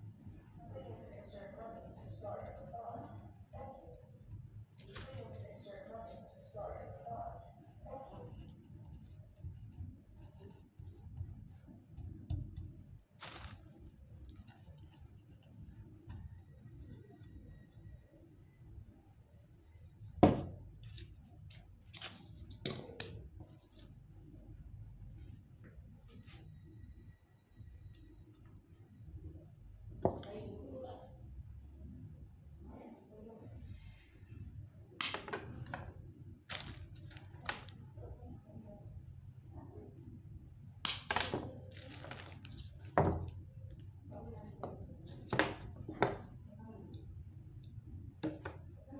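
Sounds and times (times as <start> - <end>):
rustle of handling: 4.8 - 6.3, 13.2 - 15.2, 36.5 - 37.8
craft materials rustling and clicking: 36.5 - 37.8.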